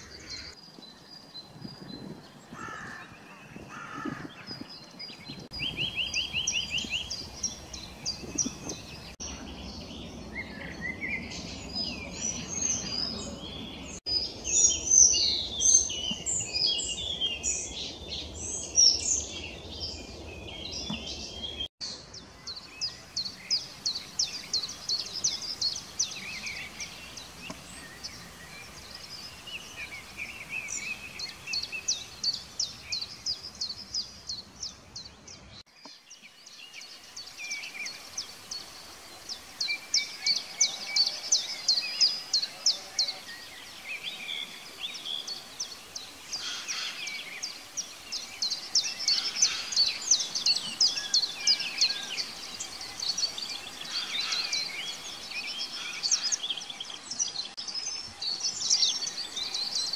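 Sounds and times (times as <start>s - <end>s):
songbirds singing: 0.0s - 59.9s.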